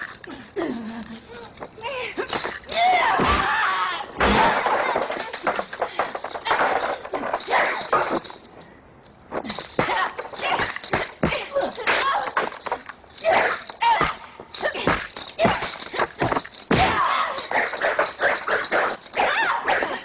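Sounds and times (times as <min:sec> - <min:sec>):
fighters shouting and grunting: 0:01.3 - 0:08.2, 0:09.5 - 0:20.0
punch and kick impacts: 0:16.2 - 0:17.2.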